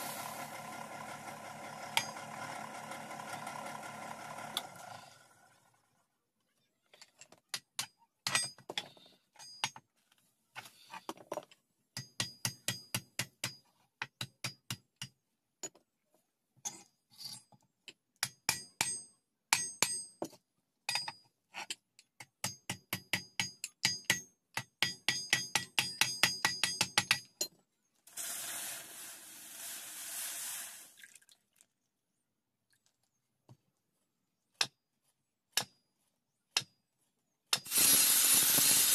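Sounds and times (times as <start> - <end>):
steady scraping noise: 0.0 - 1.4.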